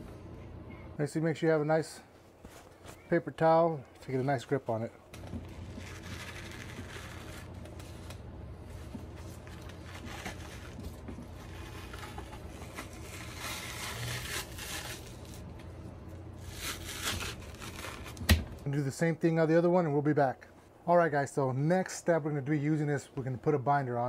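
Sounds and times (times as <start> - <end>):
low hum: 0.0 - 18.7
paper towel rustling: 2.3 - 15.6, 16.4 - 18.6.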